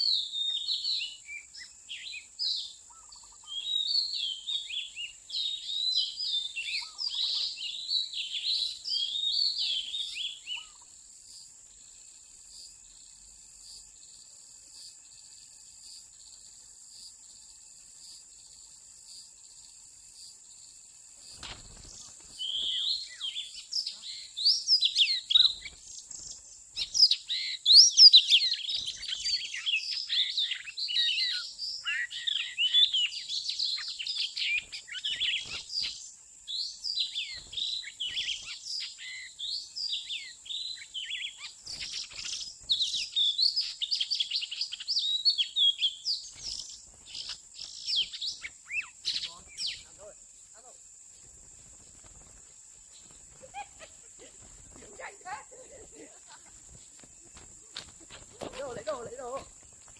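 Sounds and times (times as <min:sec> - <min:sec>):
bird singing whistled song: 0:00.0 - 0:10.8, 0:21.8 - 0:49.9
high insect buzz: 0:00.0 - 0:59.9.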